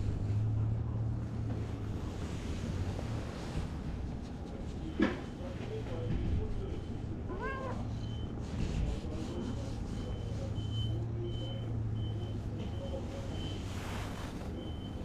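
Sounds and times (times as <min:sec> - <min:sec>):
low steady hum: 0:00.0 - 0:15.0
cat meowing: 0:07.3 - 0:07.9
faint high beeps: 0:09.4 - 0:13.8.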